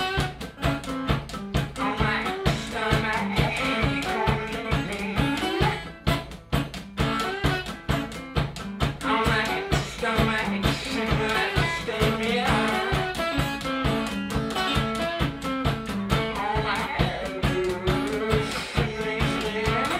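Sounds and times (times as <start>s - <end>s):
steady drum beat: 0.0s - 19.9s
strummed guitar: 0.0s - 19.9s
man singing: 1.8s - 5.8s, 9.0s - 13.5s, 16.3s - 19.9s.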